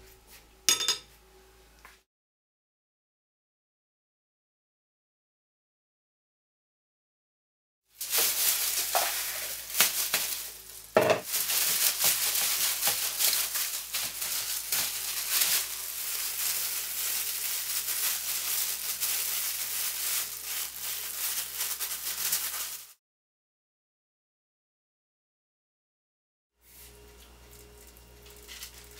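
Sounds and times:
plastic gloves and foil crinkling: 7.9s - 23.0s, 26.7s - 28.9s
meat squishing: 8.0s - 22.7s.

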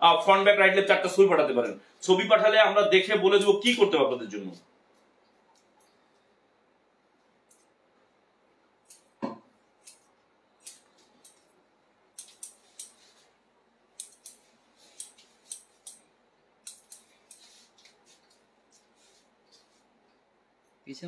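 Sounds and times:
scissors snipping hair: 7.4s - 7.7s, 8.8s - 9.2s, 9.8s - 13.2s, 14.0s - 18.9s.

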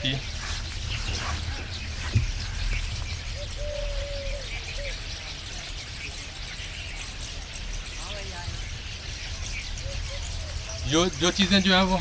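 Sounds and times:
drawn-out bird call notes: 0.0s - 12.0s
small birds chirping: 0.0s - 12.0s
steady low rumble: 0.0s - 12.0s.

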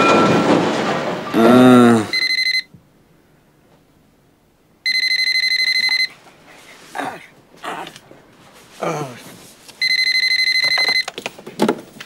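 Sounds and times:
telephone ringing: 2.1s - 2.7s, 4.8s - 6.2s, 9.8s - 11.2s.

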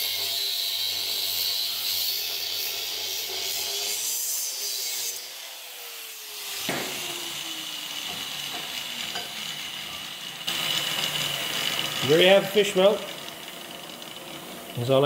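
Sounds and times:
angle grinder cutting steel pipe: 0.0s - 15.0s
motor winding down: 6.2s - 15.0s
sharp knock: 6.7s - 7.0s.

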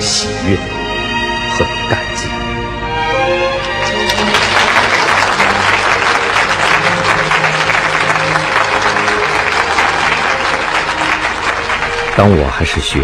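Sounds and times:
soft music: 0.0s - 13.0s
audience applauding: 3.6s - 13.0s.

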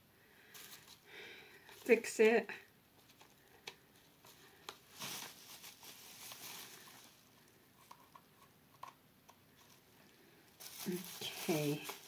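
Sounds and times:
bubble wrap rustling and crinkling: 0.5s - 2.2s, 3.0s - 8.2s, 9.5s - 12.0s.

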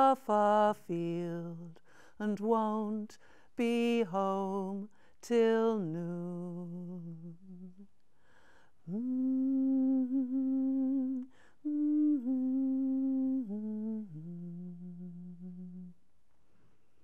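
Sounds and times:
woman breathing in: 1.8s - 2.2s, 8.2s - 8.8s
woman humming: 8.9s - 16.0s.

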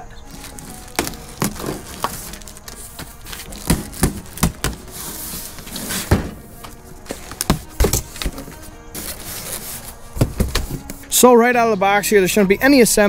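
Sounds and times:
cardboard box knocking and scraping: 0.4s - 6.4s, 7.1s - 11.0s.

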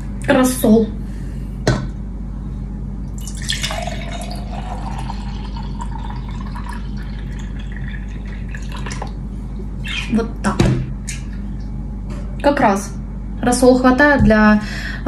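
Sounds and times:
liquid pouring into glass mug: 3.2s - 9.2s.

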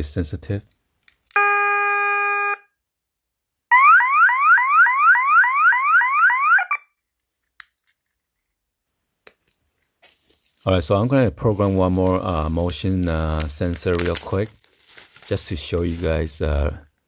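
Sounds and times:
alarm beep: 1.4s - 2.7s
siren whooping: 3.7s - 6.8s.

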